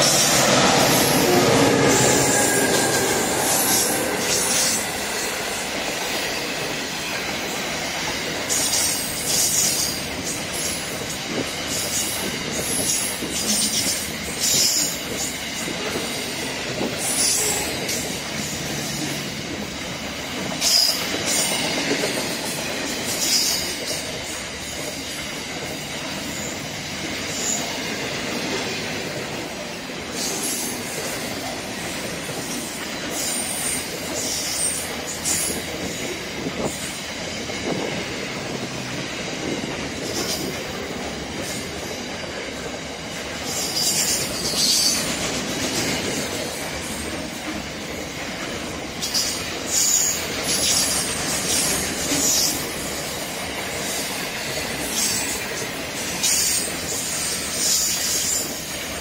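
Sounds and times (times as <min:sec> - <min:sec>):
train wheels rumbling on rails: 0:00.0 - 0:59.0.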